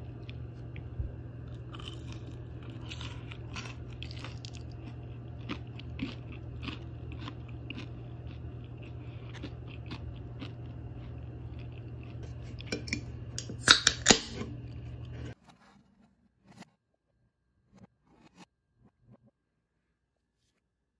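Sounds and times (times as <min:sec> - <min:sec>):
crunching and chewing crispy food: 0:00.0 - 0:12.8
steady low hum: 0:00.0 - 0:15.5.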